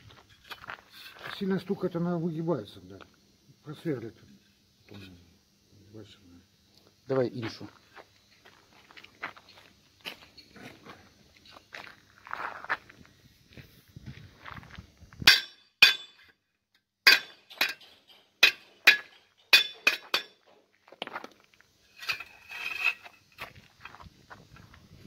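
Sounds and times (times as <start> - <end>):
metal plate ringing: 15.3 - 16.2, 17.1 - 20.4
hammer clinking on metal plate: 15.3 - 16.3, 17.1 - 20.4.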